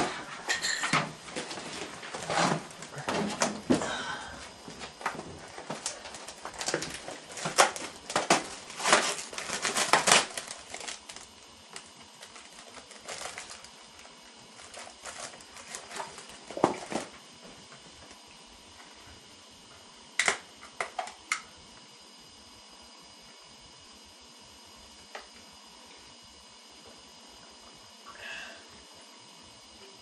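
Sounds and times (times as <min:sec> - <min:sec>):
paper crinkling and clicking: 0:04.9 - 0:17.1.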